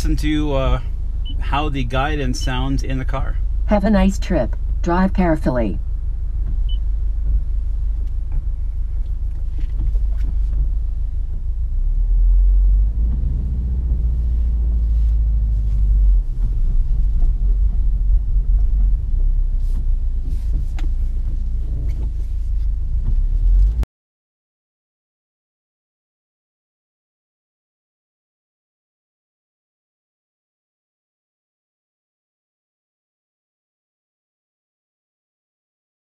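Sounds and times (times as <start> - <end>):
car engine rumbling: 0.0 - 23.9.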